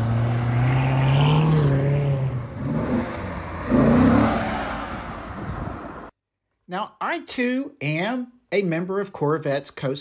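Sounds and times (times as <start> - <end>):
car accelerating loudly: 0.0 - 6.1
sports car engine pulling away: 0.0 - 6.1.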